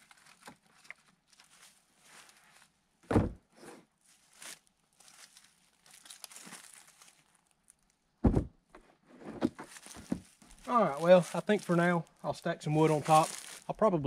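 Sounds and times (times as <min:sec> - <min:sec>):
plastic crinkling and scraping: 0:00.0 - 0:02.8, 0:04.0 - 0:08.0, 0:09.1 - 0:13.8
heavy thuds of wood set down: 0:03.0 - 0:03.5, 0:08.2 - 0:08.6, 0:09.2 - 0:10.3.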